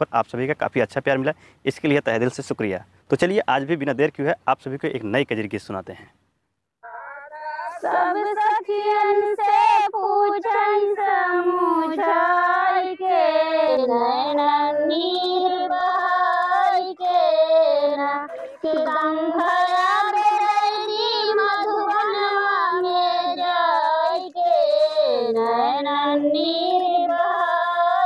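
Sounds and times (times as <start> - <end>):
short breaths: 1.3 - 1.7, 18.3 - 18.7
woman singing unaccompanied: 6.8 - 28.0.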